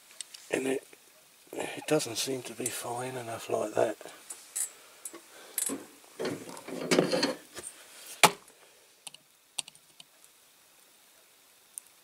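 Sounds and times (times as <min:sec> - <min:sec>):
small ticks: 0:09.0 - 0:12.0.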